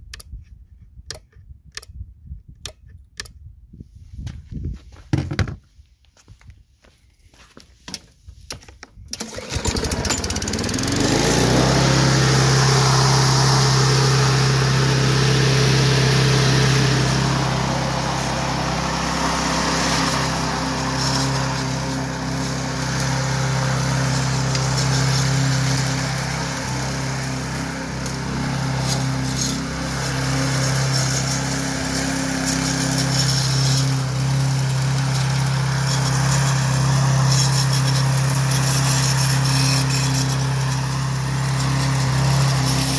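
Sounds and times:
lawn mower engine starting and running: 0:07.8 - 0:42.9.

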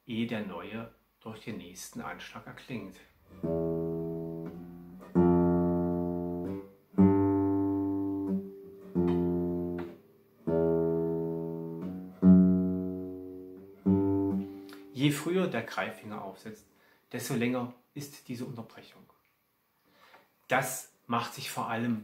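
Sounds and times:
guitar plucked notes: 0:03.3 - 0:15.3.

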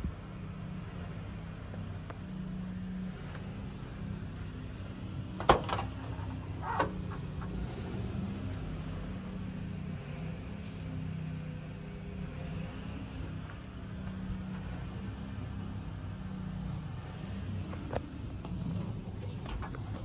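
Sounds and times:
diesel truck engine idling: 0:00.0 - 0:12.3
truck door unlatching clack: 0:05.4 - 0:07.6.

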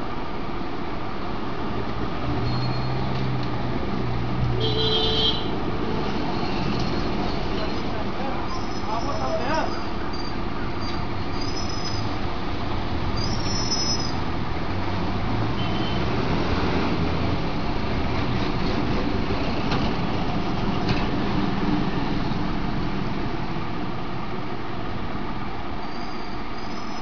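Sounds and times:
faint high squeaks: 0:02.4 - 0:03.2, 0:08.5 - 0:12.1, 0:13.2 - 0:14.2, 0:25.8 - 0:27.0.

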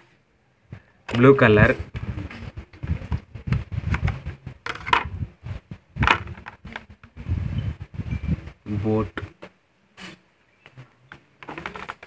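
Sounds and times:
plastic tray crackling: 0:11.4 - 0:12.0.

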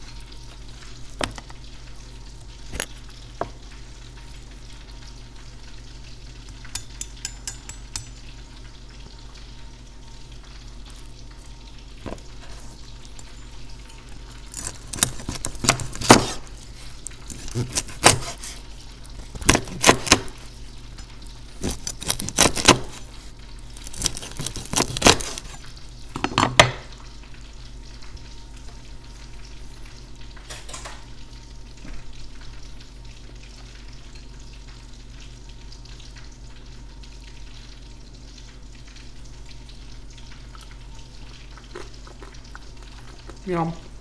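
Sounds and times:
low steady hum: 0:00.0 - 0:44.0
knife crunching crackly pork skin: 0:14.0 - 0:26.8.

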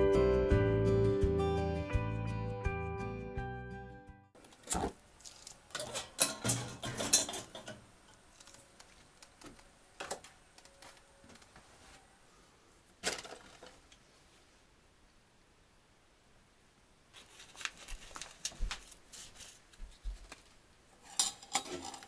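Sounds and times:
objects clattering and knocking: 0:04.4 - 0:11.5, 0:13.0 - 0:14.0, 0:21.0 - 0:22.0.

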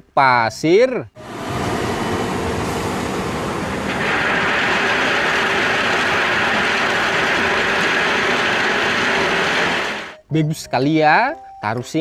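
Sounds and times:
diesel engine running: 0:01.2 - 0:10.2
crushed stone pouring: 0:03.8 - 0:09.9.

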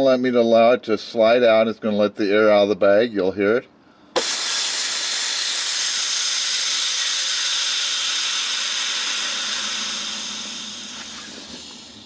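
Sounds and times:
compressed air hissing: 0:04.1 - 0:12.0.

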